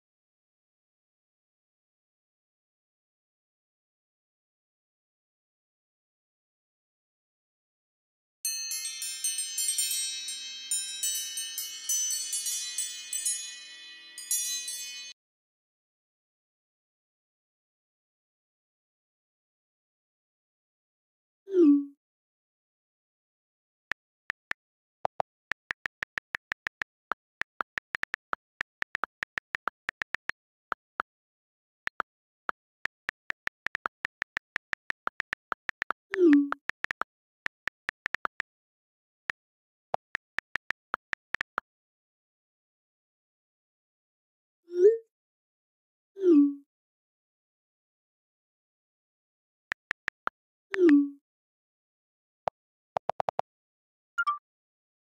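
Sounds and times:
phone keyboard clicks: 24.0 - 31.0, 31.9 - 38.6, 39.4 - 41.6, 49.7 - 50.3, 53.0 - 53.4
message alert pop: 54.2 - 54.4.

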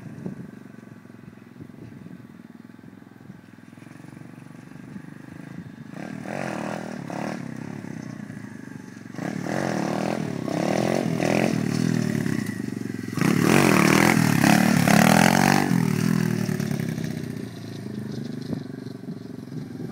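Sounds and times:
motorbike engine revving: 3.9 - 19.9.

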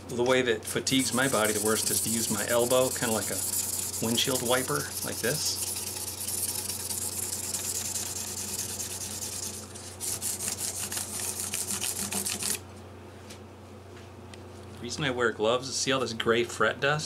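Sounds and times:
sanding hiss on metal: 0.9 - 10.6.

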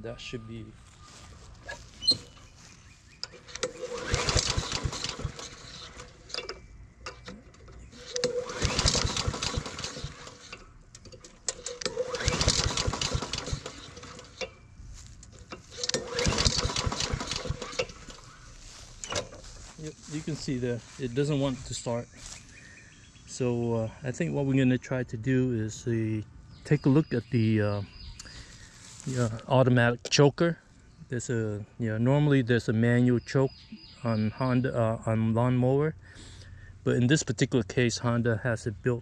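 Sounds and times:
lawn mower engine cranking: 3.2 - 21.8.

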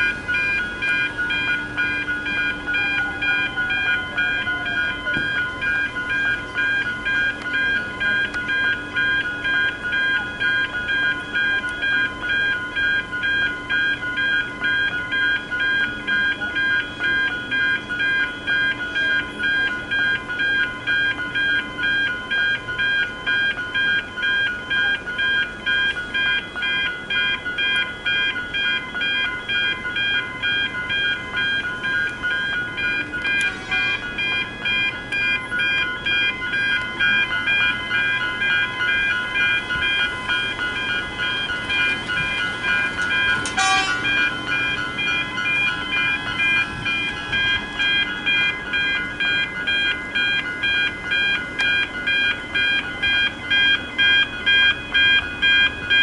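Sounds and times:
level crossing warning bell: 0.0 - 56.0.

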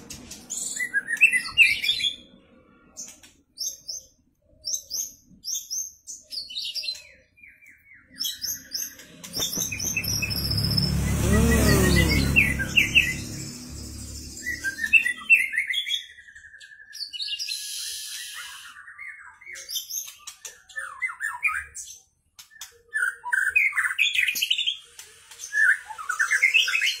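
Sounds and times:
bird singing whistled notes: 3.6 - 20.0.

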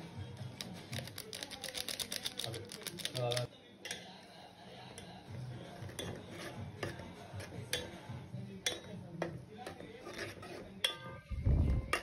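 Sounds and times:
metal ladle scraping metal pot: 5.7 - 8.0, 9.6 - 12.0.

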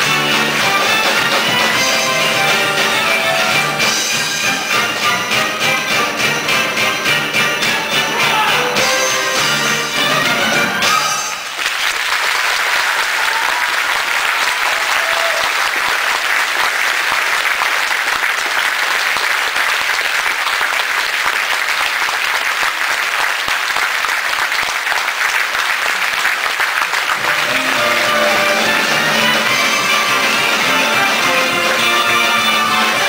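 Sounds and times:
band playing: 0.0 - 11.6, 27.1 - 33.0
audience applauding: 0.0 - 33.0.

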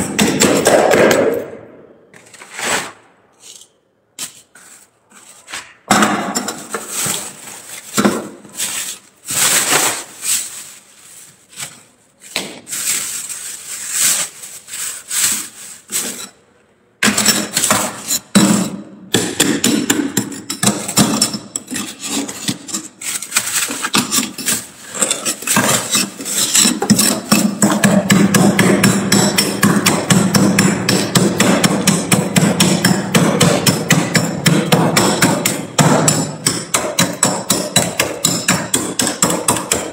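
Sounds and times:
metal spatula scraping frost: 2.2 - 5.8, 6.4 - 12.0, 12.6 - 16.5, 20.3 - 27.6
frost crunching in plastic bag: 6.8 - 16.0.

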